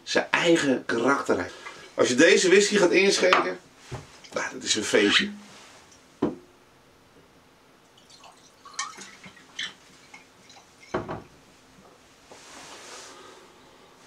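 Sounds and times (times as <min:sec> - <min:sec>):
liquid pouring into glass: 0:07.8 - 0:11.2.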